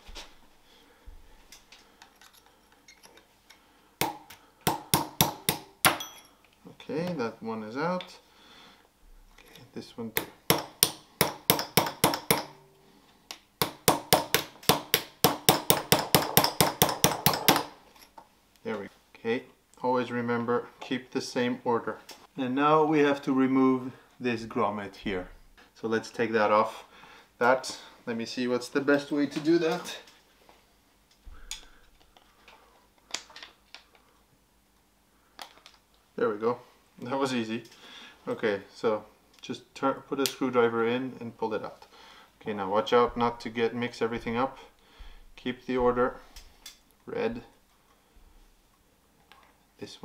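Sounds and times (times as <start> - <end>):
hammer striking metal: 4.0 - 6.3, 10.2 - 12.8, 13.6 - 17.8.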